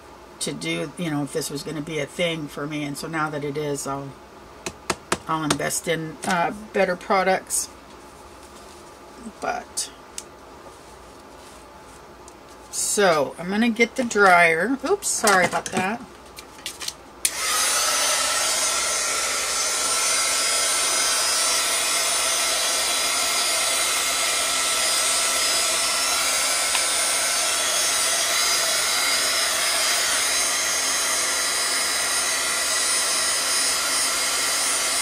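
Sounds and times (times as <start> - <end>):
handheld dryer whining: 17.2 - 35.0.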